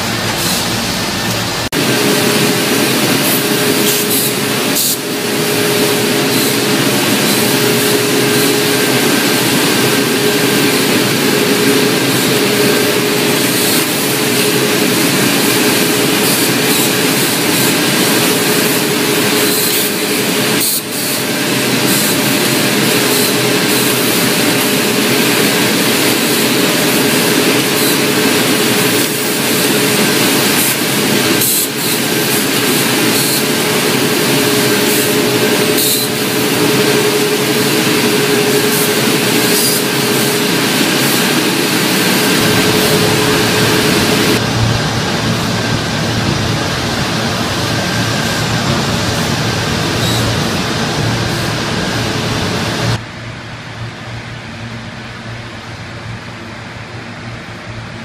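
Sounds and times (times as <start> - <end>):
machine hiss: 0.0 - 53.0
constant hum tone: 0.0 - 58.0.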